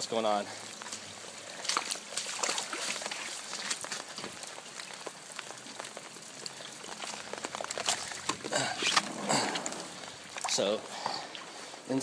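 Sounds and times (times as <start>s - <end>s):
floodwater running: 0.0s - 12.0s
water drips and patters: 0.0s - 12.0s.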